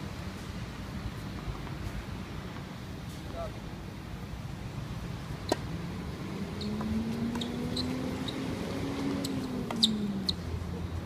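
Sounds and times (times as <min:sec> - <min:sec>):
racket hitting tennis ball: 0:05.4 - 0:05.7, 0:06.8 - 0:08.3
short high squeaks: 0:06.6 - 0:08.4, 0:09.2 - 0:10.4.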